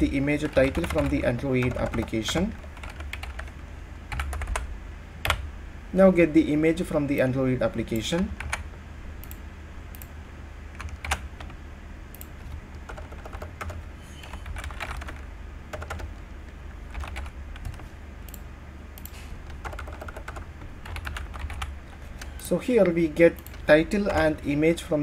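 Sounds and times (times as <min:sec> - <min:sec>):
steady low hum: 0:00.0 - 0:25.0
typing on computer keyboard: 0:00.4 - 0:03.5, 0:04.1 - 0:04.7, 0:10.8 - 0:11.5, 0:12.2 - 0:16.2, 0:16.9 - 0:18.4, 0:19.0 - 0:21.7.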